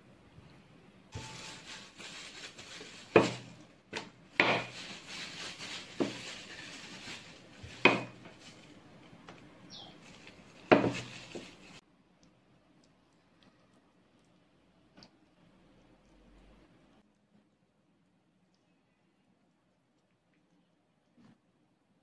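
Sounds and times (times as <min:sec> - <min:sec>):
rolling pin rolling dough: 0:03.1 - 0:04.8, 0:07.6 - 0:08.7, 0:10.2 - 0:11.7.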